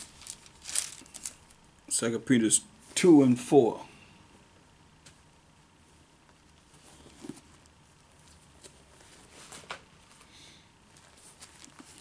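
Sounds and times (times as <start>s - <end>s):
paper pages rustling and turning: 0.0s - 1.6s, 6.6s - 10.2s, 10.9s - 12.0s.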